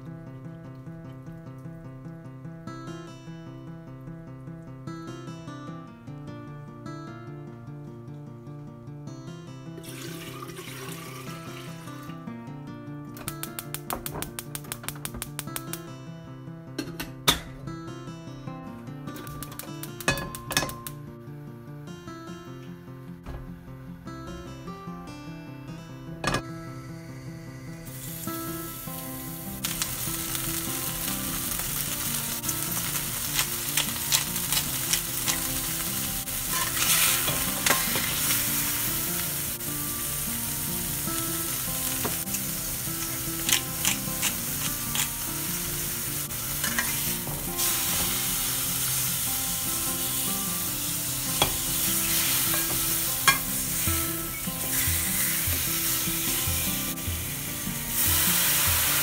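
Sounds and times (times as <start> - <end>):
meat sizzling in oil: 9.8 - 12.0, 27.6 - 59.0.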